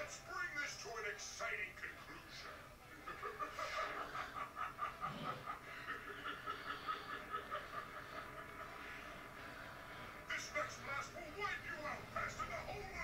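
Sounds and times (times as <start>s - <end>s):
high-pitched snickering laughter: 2.9s - 9.2s.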